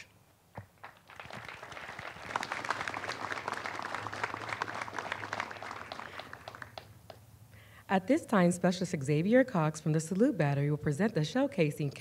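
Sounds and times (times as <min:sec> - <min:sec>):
audience applauding: 0:00.8 - 0:07.2.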